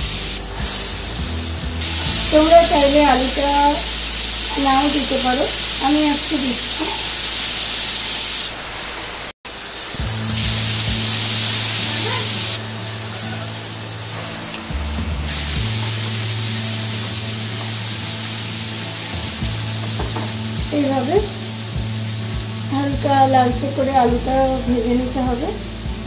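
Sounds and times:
background music with low notes: 0:00.0 - 0:06.8, 0:10.0 - 0:26.0
potatoes sizzling in oil: 0:00.0 - 0:26.0.

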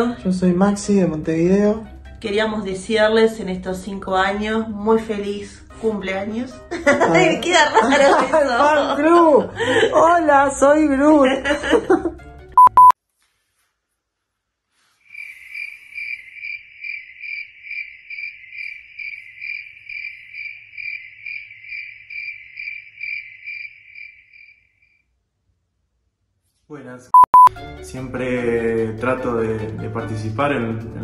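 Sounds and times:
test-tone beep: 0:12.6 - 0:13.0, 0:27.2 - 0:27.5
cricket chirping: 0:15.0 - 0:25.0.

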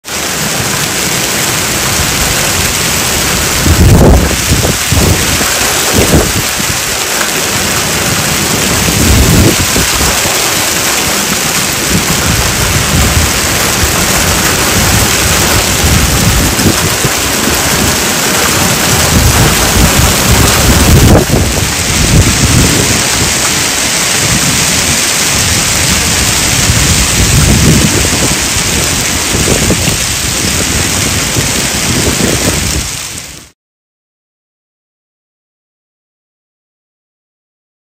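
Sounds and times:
hail and heavy rain on pavement: 0:00.0 - 0:33.6
low rumbles: 0:00.1 - 0:33.3.

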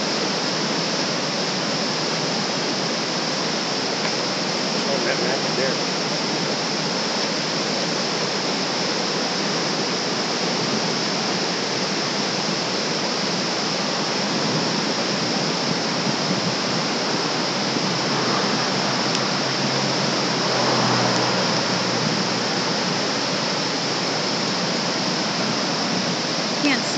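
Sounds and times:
river rapids rushing over boulders: 0:00.0 - 0:26.9.

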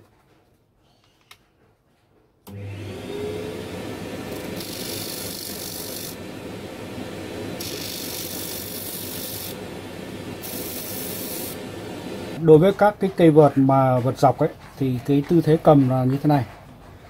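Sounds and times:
disc sander motor running: 0:02.5 - 0:12.5
vacuum running: 0:02.5 - 0:12.9
wood rasping on sanding disc: 0:04.3 - 0:06.2, 0:07.6 - 0:11.7.

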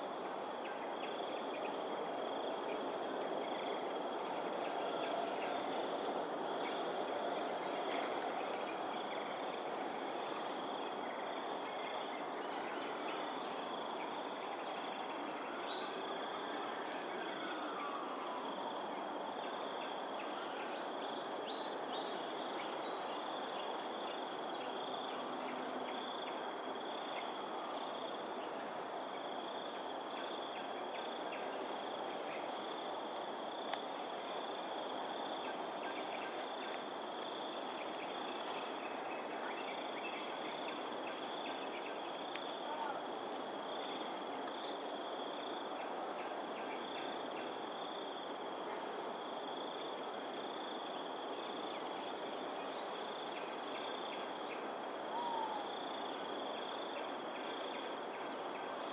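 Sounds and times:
insects droning: 0:00.0 - 0:58.9
faint bird chirps: 0:55.1 - 0:55.7.

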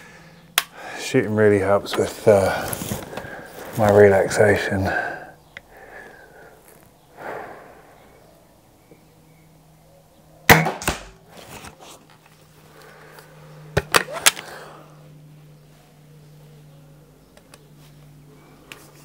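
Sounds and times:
air rifle firing: 0:10.5 - 0:11.2.

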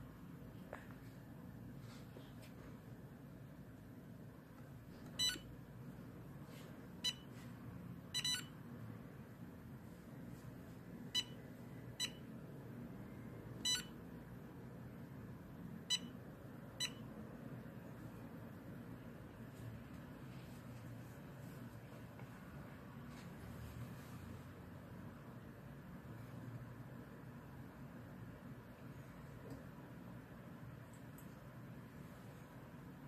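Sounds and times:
low steady hum: 0:00.0 - 0:33.0
short high touchscreen beeps: 0:08.2 - 0:08.5.

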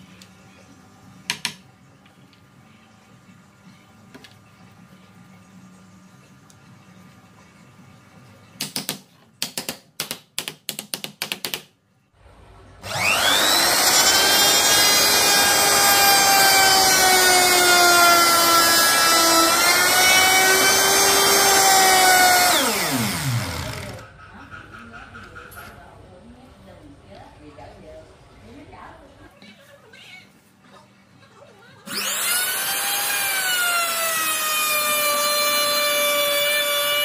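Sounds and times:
electric power tool whirring: 0:12.8 - 0:24.0, 0:31.9 - 0:37.0.

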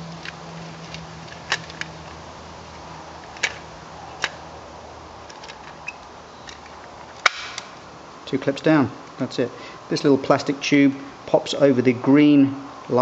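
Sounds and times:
plastic clips snapping into place: 0:06.5 - 0:07.7.

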